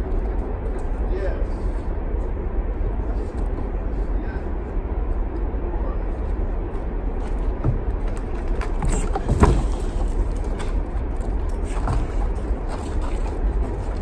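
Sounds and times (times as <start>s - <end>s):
low rumbling: 0.0s - 14.0s.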